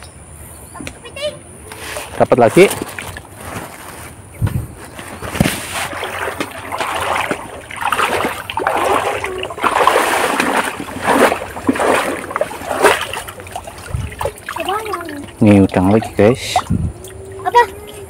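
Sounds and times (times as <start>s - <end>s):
river water splashing: 5.7s - 18.0s.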